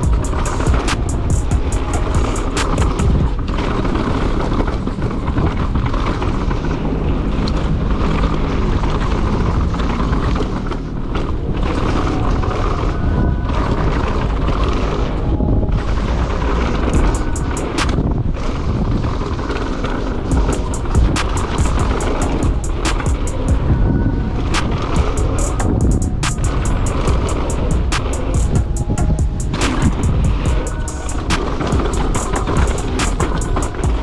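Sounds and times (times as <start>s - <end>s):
sharp clicks: 0.0s - 3.2s, 20.3s - 23.6s, 24.6s - 34.0s
bike rattling over ground: 0.0s - 34.0s
wind buffeting microphone: 0.0s - 34.0s.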